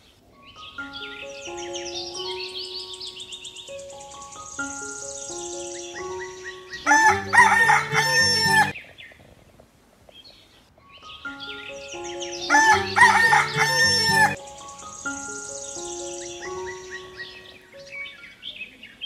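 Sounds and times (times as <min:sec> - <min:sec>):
light background music: 0:00.4 - 0:08.8, 0:10.9 - 0:18.5
rooster crowing: 0:06.8 - 0:08.7, 0:12.5 - 0:14.4.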